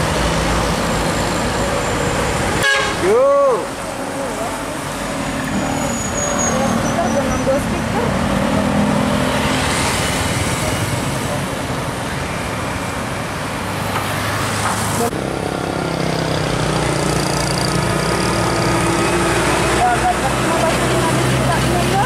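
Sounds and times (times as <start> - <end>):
bus engine running: 12.9 - 22.0.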